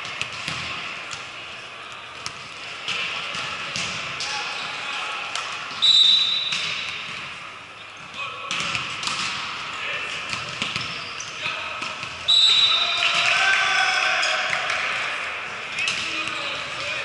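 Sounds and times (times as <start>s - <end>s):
referee's whistle blasts: 5.8s - 6.7s, 12.3s - 13.1s
players shouting: 11.4s - 17.0s.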